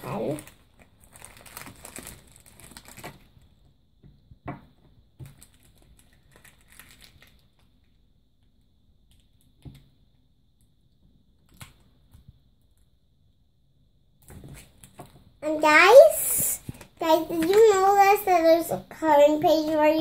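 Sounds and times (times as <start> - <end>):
plastic wrapper crinkling: 0.0 - 3.6, 5.2 - 7.8, 15.8 - 18.2.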